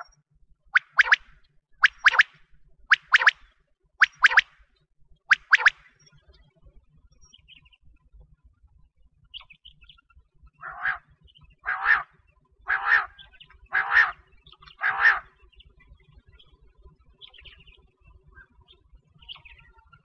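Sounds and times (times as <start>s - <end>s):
quail calling: 0.8s - 1.2s, 1.8s - 3.4s, 4.0s - 4.4s, 5.3s - 5.8s, 10.6s - 15.3s
faint high chirps: 0.8s - 4.5s, 5.3s - 6.5s.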